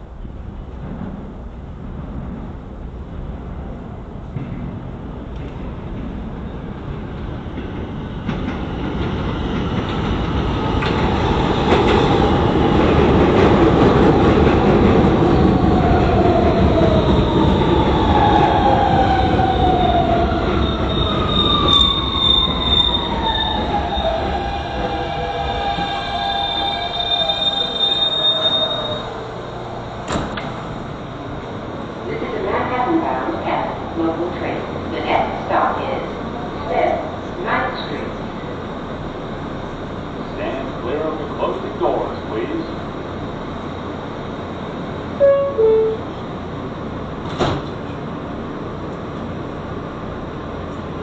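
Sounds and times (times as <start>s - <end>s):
train rumble: 0.0s - 51.0s
train wheels squealing on rails: 16.7s - 29.4s
two-note electronic chime: 45.2s - 46.1s.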